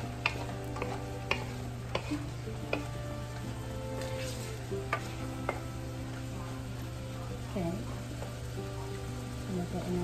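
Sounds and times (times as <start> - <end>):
food sizzling in a wok: 0.0 - 10.0
soft background music: 0.0 - 10.0
spatula knocking against pan: 0.1 - 3.0.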